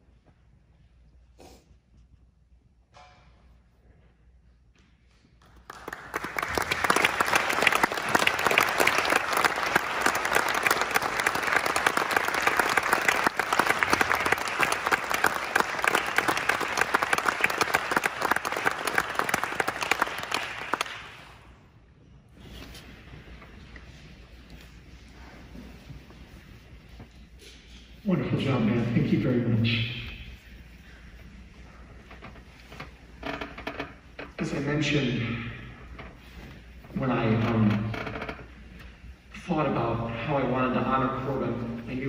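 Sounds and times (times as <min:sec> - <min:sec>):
audience applauding: 0:05.4 - 0:21.5.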